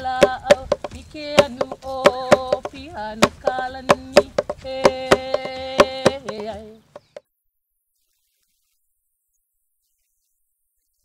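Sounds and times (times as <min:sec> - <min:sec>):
person chanting on held notes: 0:00.0 - 0:06.9
hand drum beats: 0:00.0 - 0:07.2.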